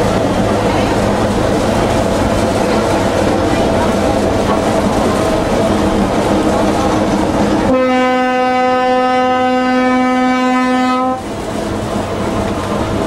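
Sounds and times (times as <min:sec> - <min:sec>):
railcar running on track: 0:00.0 - 0:13.0
railcar horn long note: 0:07.7 - 0:11.2.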